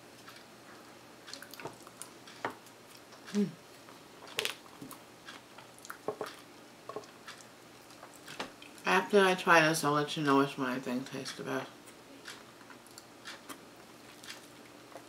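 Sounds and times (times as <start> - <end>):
person humming: 3.3 - 3.6.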